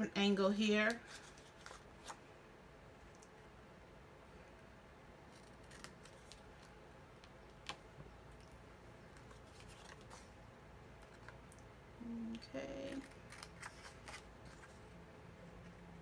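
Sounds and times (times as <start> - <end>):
scissors snipping paper: 12.7 - 14.3.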